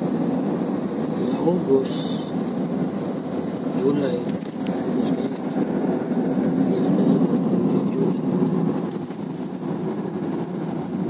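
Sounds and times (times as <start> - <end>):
car road and engine noise: 0.0 - 11.0.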